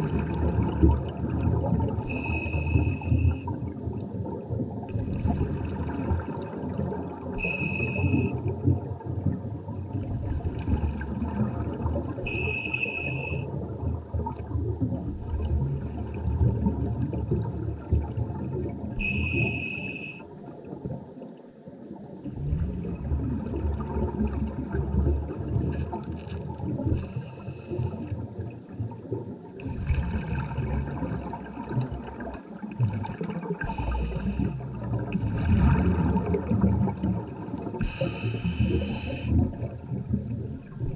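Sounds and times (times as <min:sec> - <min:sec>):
bubbling exhalation underwater: 0:29.6 - 0:40.9
scuba regulator hissing inhalations: 0:33.7 - 0:34.6, 0:37.8 - 0:39.4.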